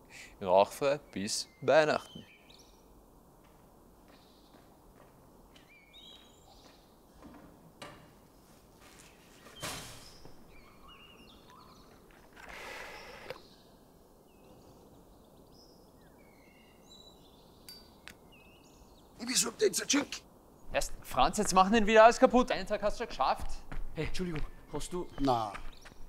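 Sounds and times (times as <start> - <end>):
small birds chirping: 0.0 - 7.8, 8.4 - 26.0
scraping or rustling: 8.4 - 10.4.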